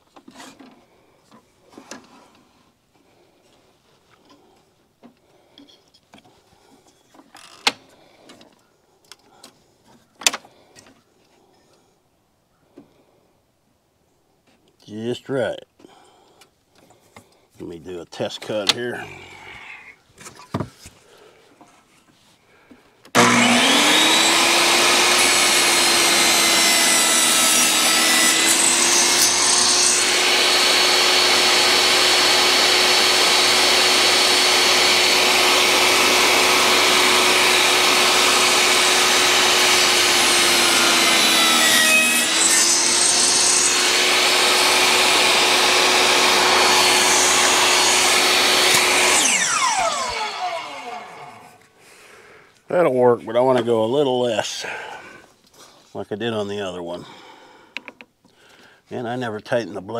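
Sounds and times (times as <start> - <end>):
saw blade cutting wood: 0.2 - 0.7, 23.1 - 51.7
saw winding down: 23.1 - 51.6
table saw running: 23.1 - 51.6.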